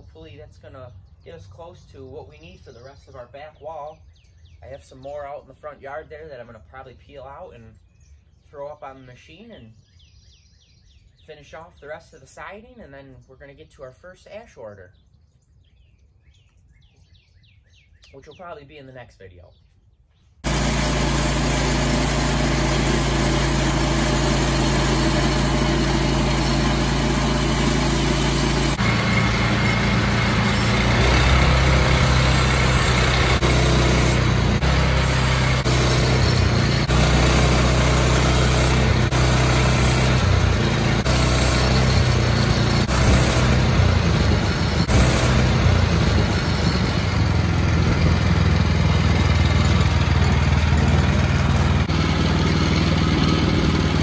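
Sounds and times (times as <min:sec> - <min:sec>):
saw blade cutting log: 0:20.4 - 0:48.0
band sawmill running: 0:20.4 - 0:54.0.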